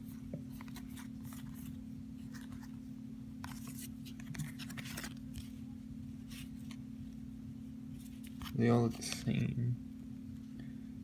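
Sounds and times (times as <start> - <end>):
steady low hum: 0.0 - 11.0
trading cards rustling and sliding: 0.5 - 5.6, 6.2 - 6.8, 7.9 - 9.4.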